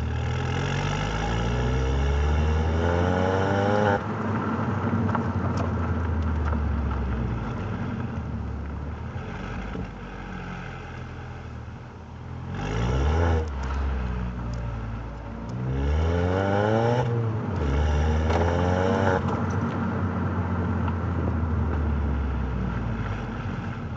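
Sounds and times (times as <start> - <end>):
car exhaust note while driving: 0.0 - 23.9.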